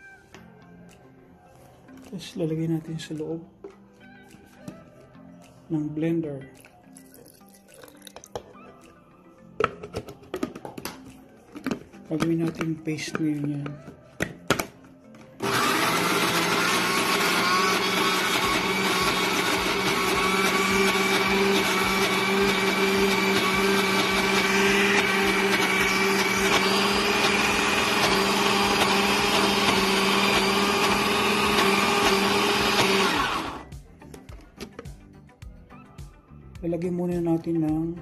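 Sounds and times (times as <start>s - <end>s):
electric blender running: 15.4s - 33.7s.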